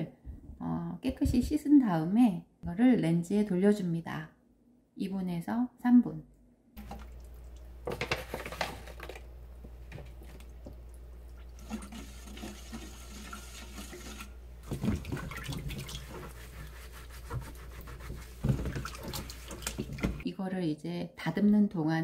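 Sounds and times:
water sloshing: 6.8 - 20.2.

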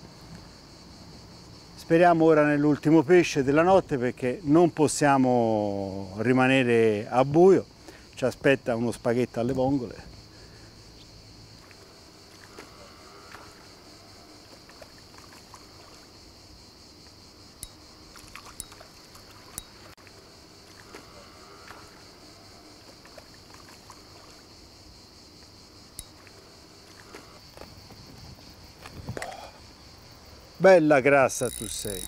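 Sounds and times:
crickets chirring: 0.0 - 32.0
fish splashing in water: 11.6 - 16.1, 18.1 - 20.0, 20.6 - 24.6
small sharp ticks: 14.4 - 16.1, 17.0 - 22.0, 25.4 - 28.0, 31.3 - 32.0.

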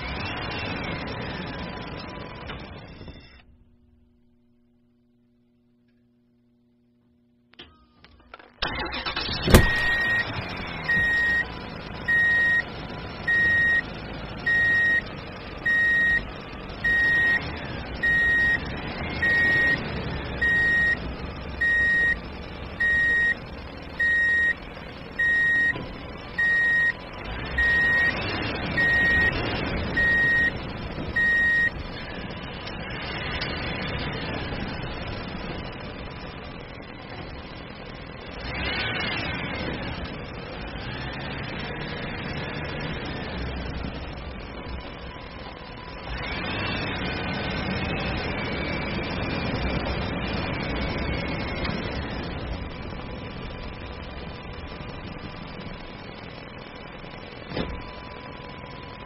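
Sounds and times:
truck engine running: 0.0 - 5.8, 7.5 - 59.0
reversing alarm beeping: 8.9 - 23.4, 24.0 - 24.6, 25.2 - 25.8, 26.4 - 30.6, 31.2 - 31.8.

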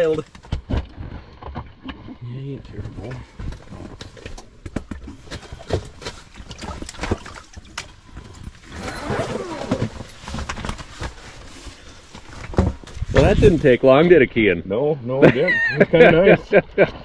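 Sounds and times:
water splashing and sloshing: 0.3 - 13.7.

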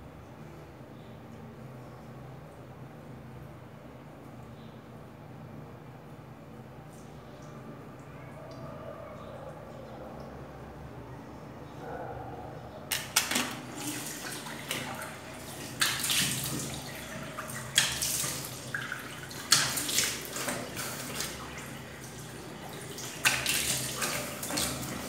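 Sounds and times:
running sink tap: 12.9 - 25.0
water splashed onto face: 12.9 - 25.0.

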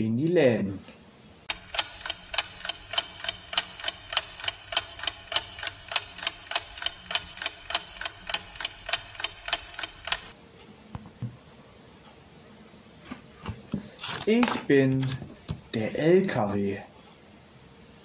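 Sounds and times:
clock ticking: 1.5 - 10.4.

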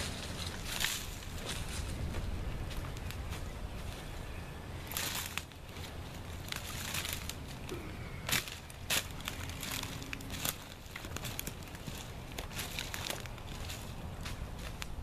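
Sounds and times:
branches cracking: 0.0 - 1.9, 4.8 - 15.0
twigs crunching under boots: 0.0 - 4.2, 4.8 - 15.0
wind rumble on microphone: 0.0 - 7.4.

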